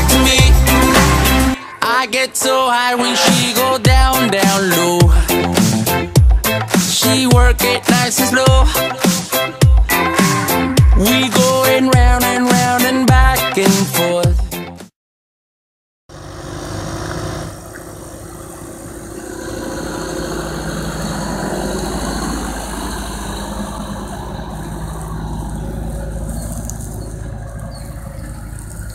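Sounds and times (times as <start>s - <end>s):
tractor diesel engine running: 0.0s - 9.0s, 16.1s - 28.9s
pop song: 0.0s - 14.9s.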